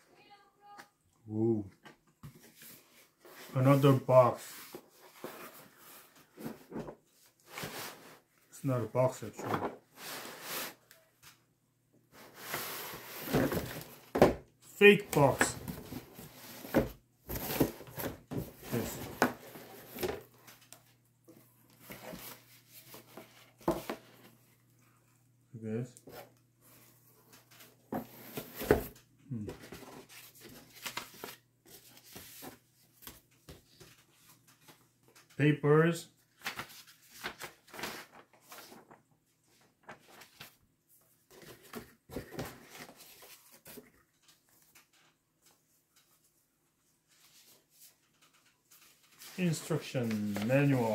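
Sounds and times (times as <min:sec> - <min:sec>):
paper rustling and crackling: 0:36.3 - 0:40.6, 0:47.1 - 0:50.9.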